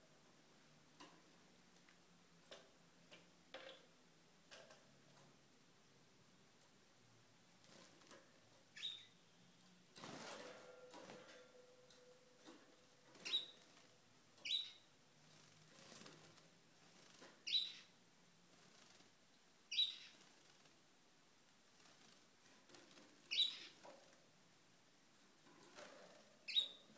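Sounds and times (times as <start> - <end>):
canary chirping: 8.7 - 9.7, 13.1 - 16.0, 17.0 - 18.0, 19.7 - 20.4, 23.2 - 23.9, 26.4 - 26.9
soft rustle of movement: 15.2 - 17.5.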